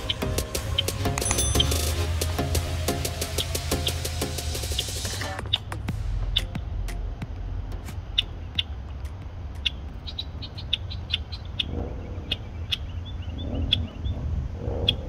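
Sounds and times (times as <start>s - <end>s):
blackbird alarm chips: 0.0s - 2.3s, 8.1s - 14.1s.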